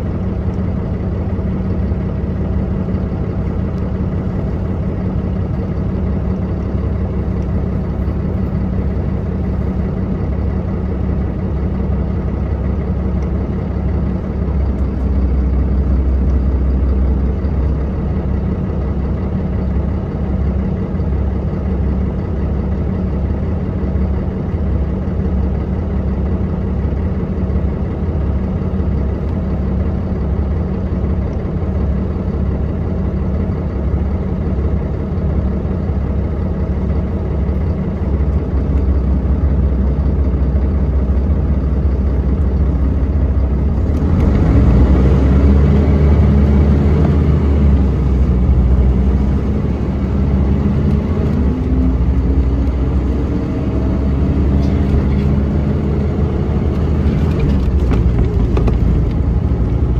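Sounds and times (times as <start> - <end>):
bus engine idling and accelerating: 0.0 - 59.9.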